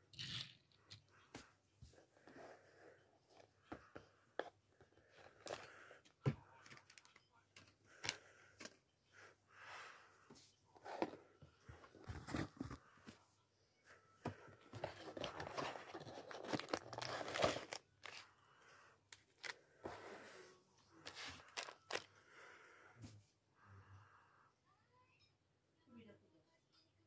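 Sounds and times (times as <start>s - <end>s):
cardboard box being opened: 14.7s - 18.2s
plastic bag crinkling: 15.0s - 18.3s, 21.4s - 22.1s.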